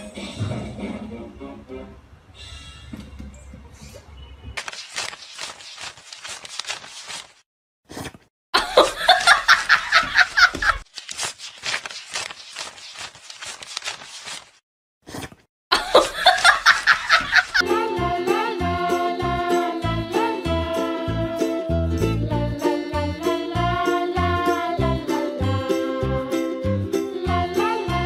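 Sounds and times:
banknotes being counted: 0:04.6 - 0:07.4, 0:10.4 - 0:14.6
snickering laughter: 0:08.6 - 0:10.8, 0:15.7 - 0:17.6.

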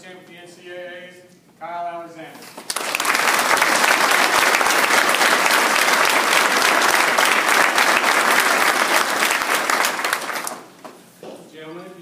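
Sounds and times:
audience clapping: 0:02.6 - 0:11.0.

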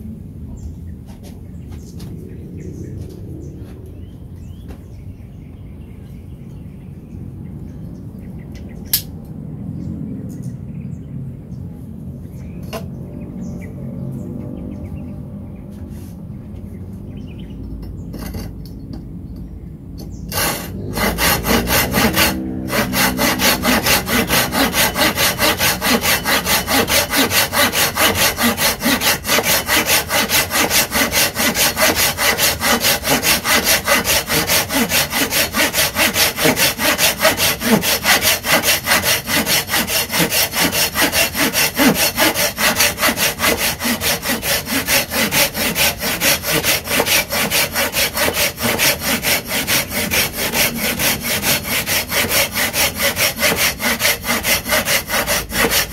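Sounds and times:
saw rasping through wood: 0:20.3 - 0:55.9.

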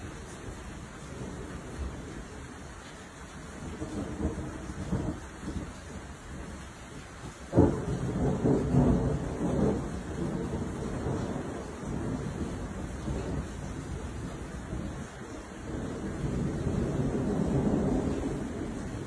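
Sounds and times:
rolling thunder: 0:03.6 - 0:06.6, 0:07.5 - 0:19.0.

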